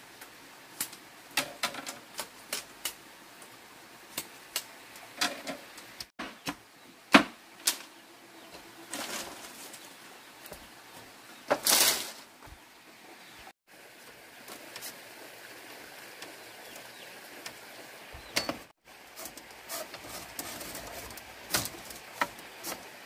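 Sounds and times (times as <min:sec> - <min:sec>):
bamboo strips clacking: 0:00.8 - 0:03.0, 0:18.3 - 0:23.0
bamboo bundle clattering down: 0:01.4 - 0:02.7, 0:08.8 - 0:10.0, 0:11.4 - 0:12.3, 0:18.3 - 0:22.8.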